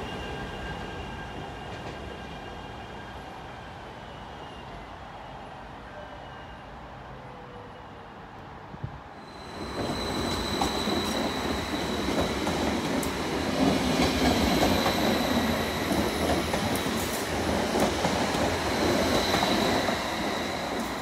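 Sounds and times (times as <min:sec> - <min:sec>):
train wheels rumbling on rails: 0:09.3 - 0:21.0.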